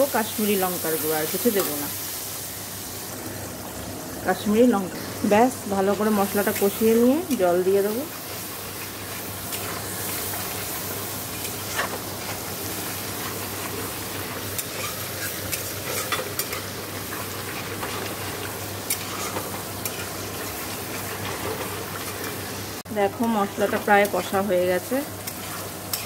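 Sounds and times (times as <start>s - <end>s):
paste sizzling in oil: 0.0s - 26.0s.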